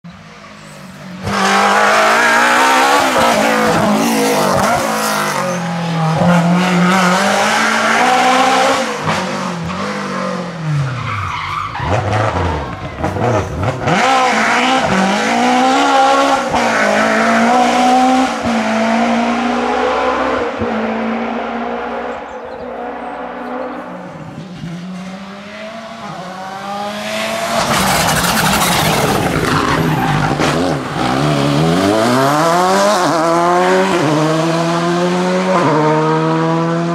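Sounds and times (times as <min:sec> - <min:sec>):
rally car engine at full throttle: 0:00.1 - 0:36.9.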